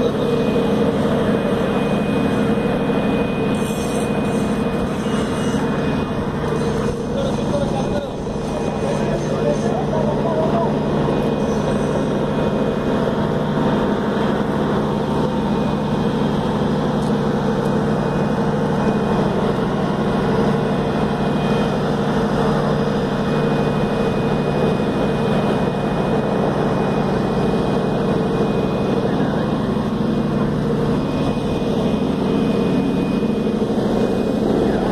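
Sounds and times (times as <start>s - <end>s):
ship engines droning: 0.0s - 34.9s.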